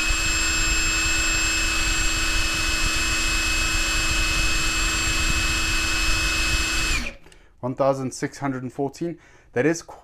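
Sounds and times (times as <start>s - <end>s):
impact wrench whining: 0.0s - 7.4s.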